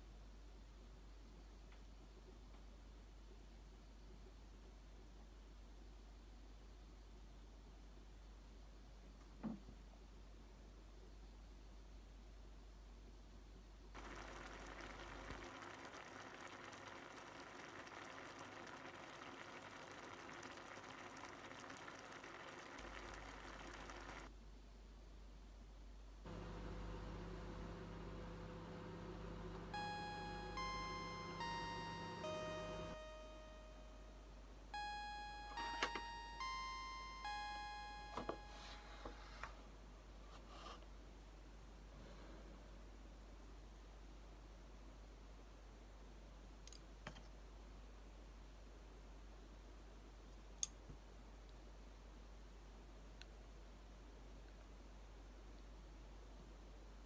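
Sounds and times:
soup simmering with bubbling hiss: 0:14.0 - 0:24.3
bell-like chime tones: 0:29.7 - 0:39.3.

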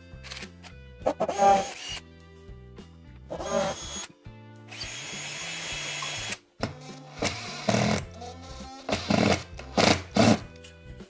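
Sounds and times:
background music: 0:00.0 - 0:11.0
power drill boring into wall: 0:03.3 - 0:04.1, 0:04.7 - 0:08.0, 0:08.8 - 0:10.5.

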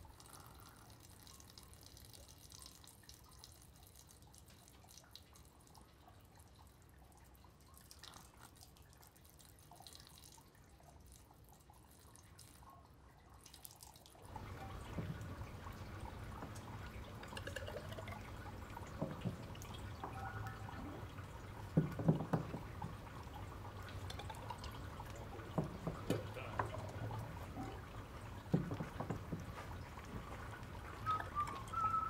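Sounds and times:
liquid dripping from a spout: 0:00.0 - 0:32.0
dull knocks: 0:21.7 - 0:23.1, 0:25.5 - 0:26.8, 0:28.4 - 0:30.2.

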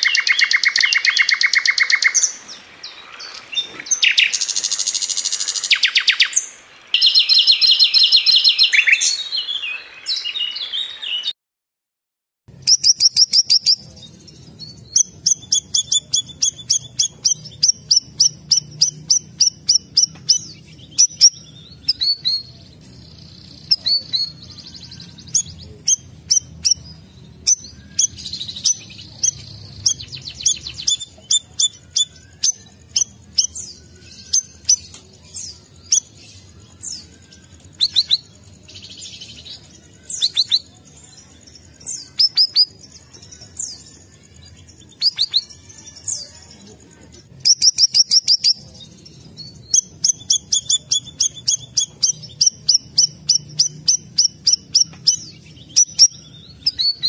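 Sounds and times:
songbirds chirping: 0:00.0 - 0:11.4, 0:12.5 - 0:57.0
bird trills: 0:12.6 - 0:40.8, 0:49.6 - 0:57.0.

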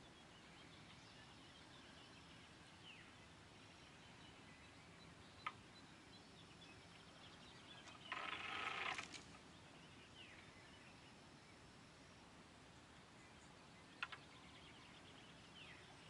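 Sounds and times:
faint bird chirps: 0:00.0 - 0:11.8, 0:12.7 - 0:16.0
spinning reel buzzing: 0:08.1 - 0:09.1.

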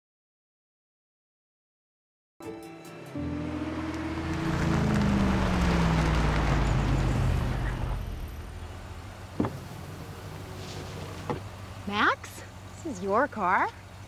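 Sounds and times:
car engine slowing to idle: 0:03.2 - 0:12.9.

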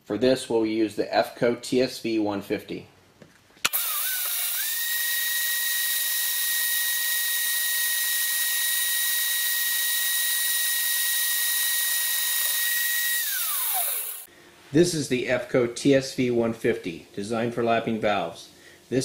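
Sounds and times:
lathe whine: 0:03.7 - 0:14.3.

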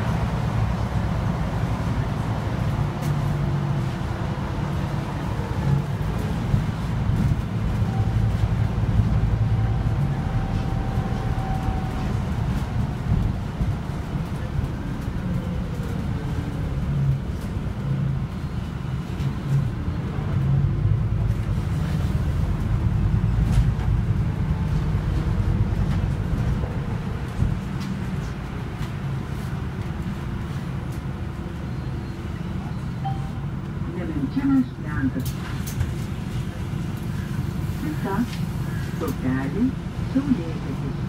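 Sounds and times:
bus engine drone: 0:00.0 - 0:41.0
road and tyre noise: 0:00.0 - 0:41.0.

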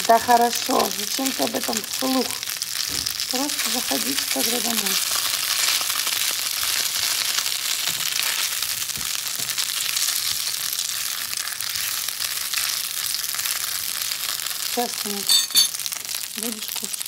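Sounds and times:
dumplings sizzling in oil: 0:00.0 - 0:17.0.

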